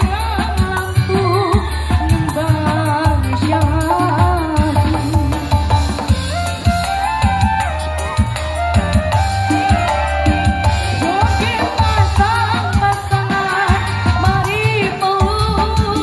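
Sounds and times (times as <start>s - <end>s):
boy singing into microphone: 0.0s - 5.6s, 10.2s - 16.0s
backing track with hand drum: 0.0s - 16.0s.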